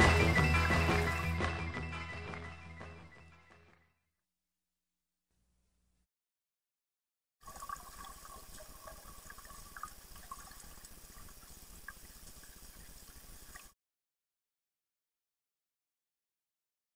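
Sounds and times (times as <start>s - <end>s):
bubbling: 7.4s - 13.7s.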